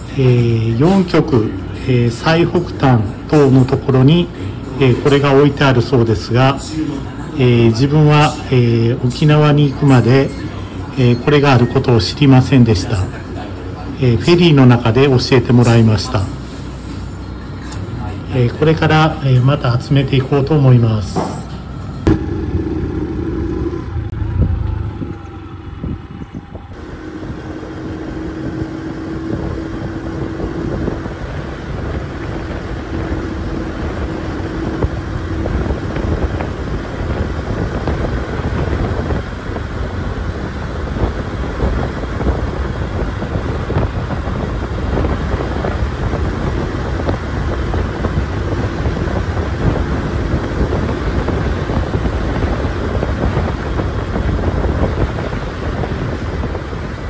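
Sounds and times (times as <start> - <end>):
moped engine running: 22.0 - 57.0
wind noise on microphone: 22.0 - 57.0.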